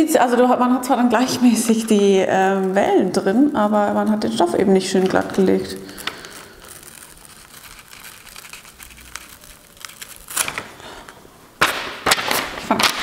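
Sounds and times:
paper rustling and crinkling: 1.2s - 13.0s.

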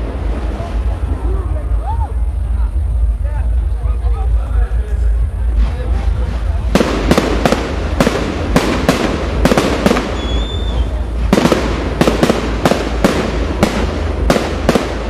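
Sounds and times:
firework shells bursting: 6.6s - 15.0s
high firework whistle: 9.7s - 11.1s.

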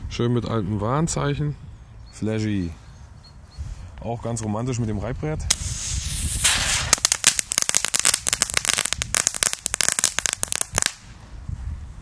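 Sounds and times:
firecracker crackling pops: 5.5s - 11.2s.

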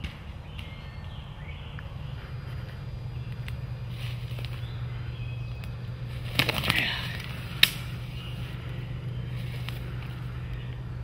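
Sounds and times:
feathers and undergrowth rustling: 3.8s - 5.0s, 6.0s - 10.4s.

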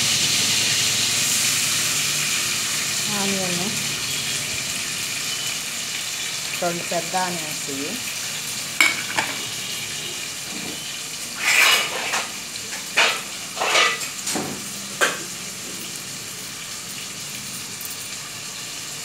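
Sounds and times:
onions sizzling in hot oil: 0.0s - 19.0s
metallic utensil clinks: 17.4s - 18.2s.

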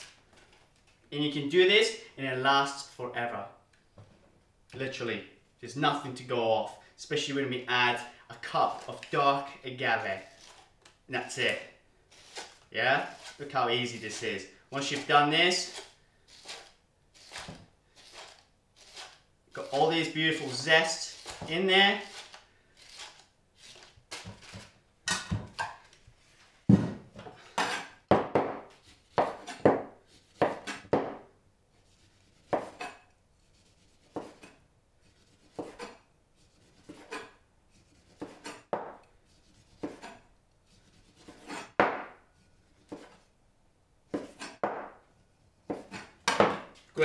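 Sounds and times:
knife cutting on wooden board: 28.6s - 31.2s, 31.9s - 33.0s, 33.6s - 43.2s, 44.1s - 44.9s, 45.6s - 46.6s.

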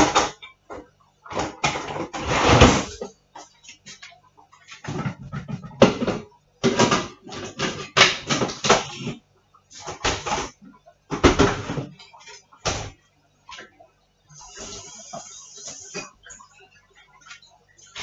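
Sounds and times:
dishes and utensils clattering: 0.0s - 9.2s.

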